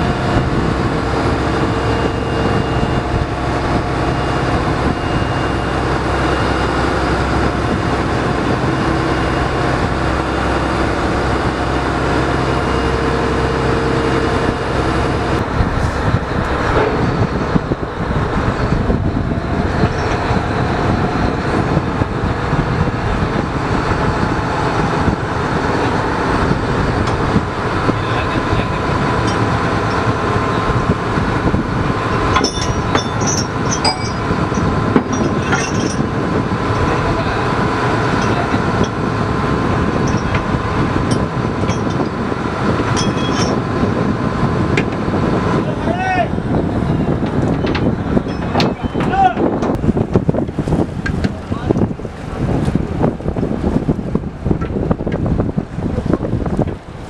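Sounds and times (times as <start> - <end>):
boat engine and machinery drone: 0.0 - 57.0.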